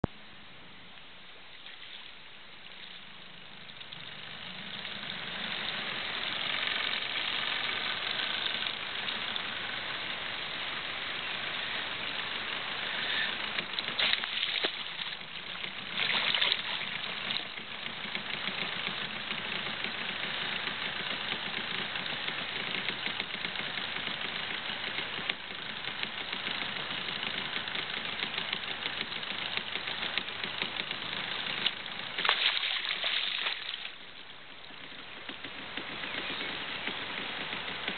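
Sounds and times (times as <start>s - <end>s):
outboard motor running: 1.6s - 37.9s
fish splashing at surface: 13.9s - 15.3s, 15.9s - 17.5s, 32.2s - 34.0s.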